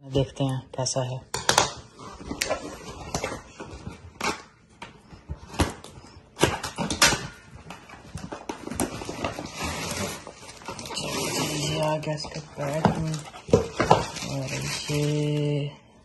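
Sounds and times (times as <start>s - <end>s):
cardboard box scraping and rustling: 8.6s - 15.3s.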